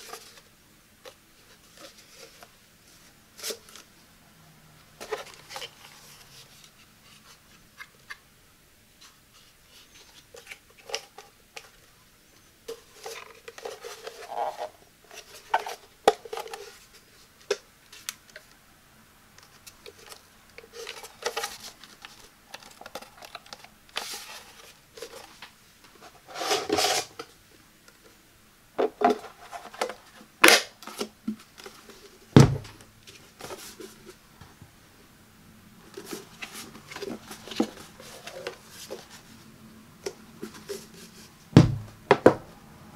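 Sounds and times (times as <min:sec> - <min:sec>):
plastic scrape: 0:26.0 - 0:27.3, 0:35.9 - 0:39.4
dull thump: 0:32.4 - 0:32.8, 0:41.6 - 0:42.4.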